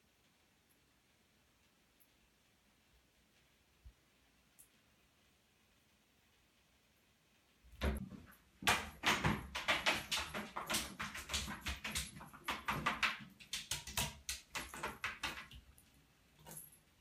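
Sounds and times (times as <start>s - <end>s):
knocks against a bathtub: 7.8s - 15.4s.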